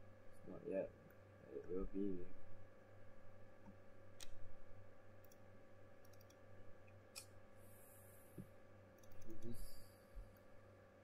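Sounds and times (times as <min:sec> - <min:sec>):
low steady hum: 0:00.0 - 0:11.0
computer mouse clicks: 0:03.6 - 0:04.4, 0:05.2 - 0:05.4, 0:06.0 - 0:07.4, 0:08.4 - 0:09.6.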